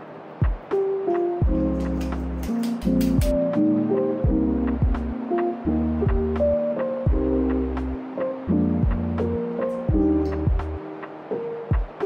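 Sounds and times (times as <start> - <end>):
music with held chords and beat: 0.3 - 12.0
light clicking percussion: 0.4 - 3.6, 9.6 - 11.1.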